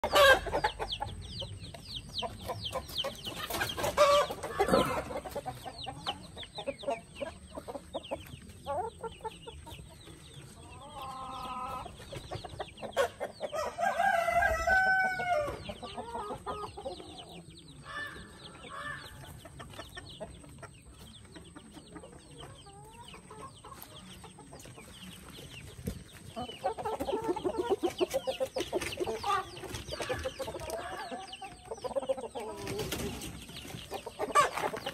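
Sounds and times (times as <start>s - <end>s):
chickens clucking: 0.0s - 34.9s
rooster crowing: 13.8s - 15.5s.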